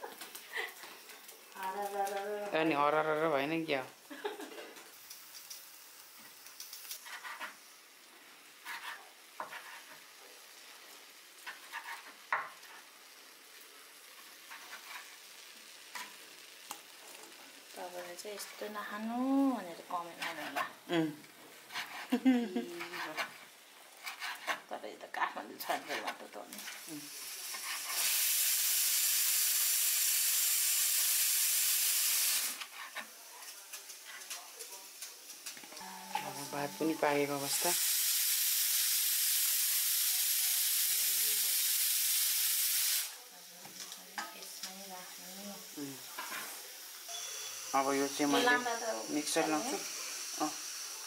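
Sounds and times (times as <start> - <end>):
food sizzling in a pan: 0.0 - 51.0
spoon scraping and knocking pan: 7.0 - 7.7, 8.6 - 10.1, 11.4 - 12.9, 14.4 - 15.2, 15.9 - 16.2
steam hissing: 26.6 - 32.7, 35.7 - 43.2, 44.7 - 51.0.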